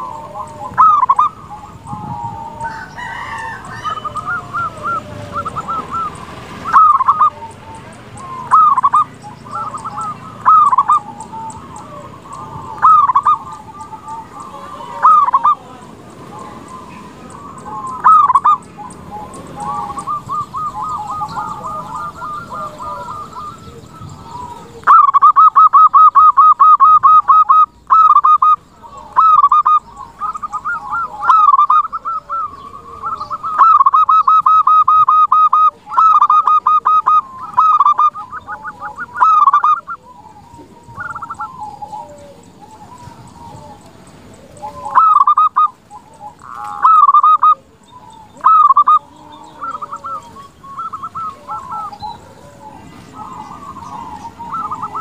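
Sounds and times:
dove cooing: 0.0 - 55.0.

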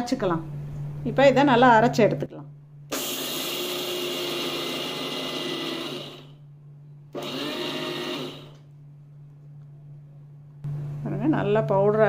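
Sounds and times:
mixer grinder grinding peanuts: 2.9 - 6.4, 7.2 - 8.6.

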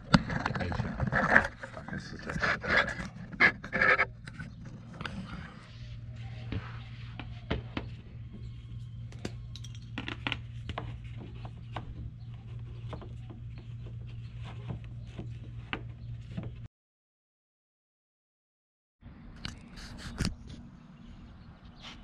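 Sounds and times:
steady low hum: 0.0 - 16.7.

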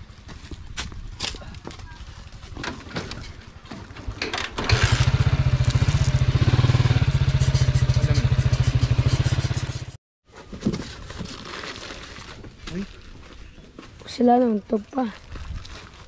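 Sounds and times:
motorcycle engine rumble: 2.6 - 10.0.

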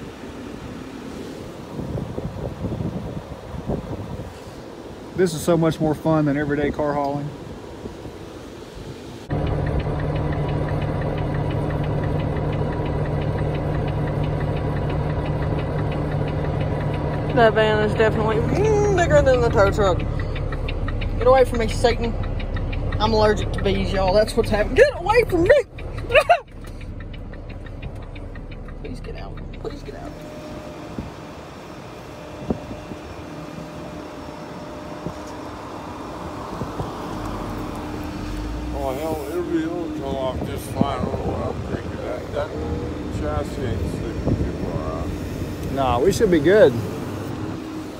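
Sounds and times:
truck engine idling: 9.2 - 47.9
sharp metal clicks: 9.3 - 30.2.

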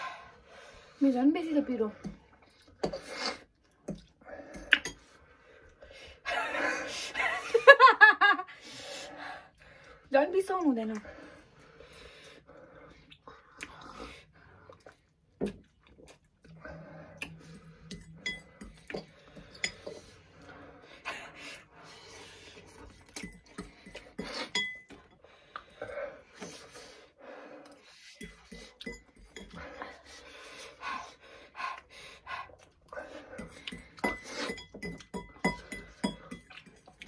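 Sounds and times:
cutlery clinking on ceramic bowls: 17.8 - 20.0, 22.9 - 25.1, 28.2 - 29.6, 33.4 - 37.0.

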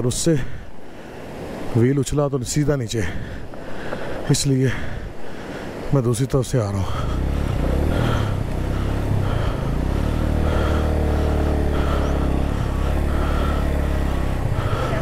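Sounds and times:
motorcycle engine running: 6.9 - 15.0.

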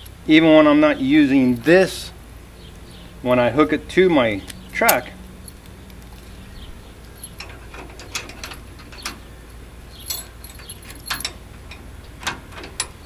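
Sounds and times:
padlock metal clicks and clinks: 4.4 - 13.0.

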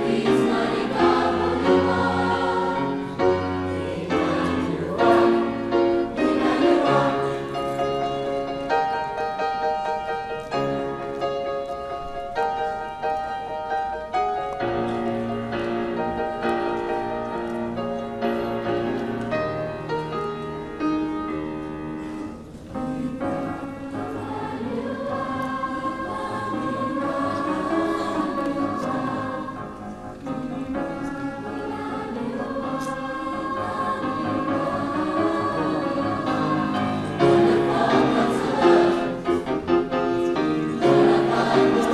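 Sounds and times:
mixed choir singing: 0.0 - 10.2, 22.7 - 41.9.

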